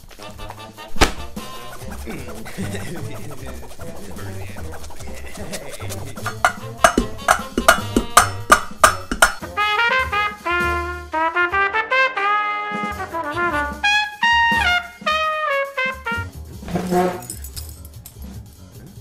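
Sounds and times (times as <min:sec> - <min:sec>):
trumpet melody: 0:00.0 - 0:02.0, 0:06.4 - 0:17.3.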